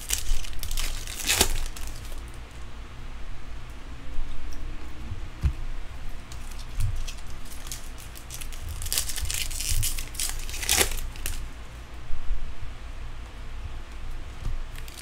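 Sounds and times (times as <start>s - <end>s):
wrapper crinkling: 0.0s - 2.2s, 6.3s - 11.5s, 14.7s - 15.0s.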